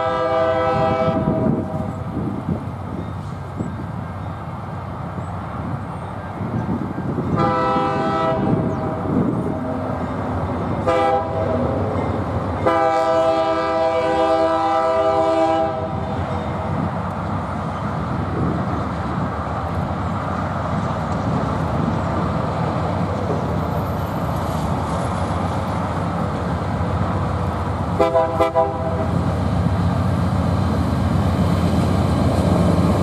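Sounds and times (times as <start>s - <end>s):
locomotive air horn blasts: 0.0s - 1.9s, 7.3s - 8.7s, 10.8s - 11.6s, 12.6s - 16.2s, 28.0s - 29.2s
train rumbling past: 0.0s - 33.0s.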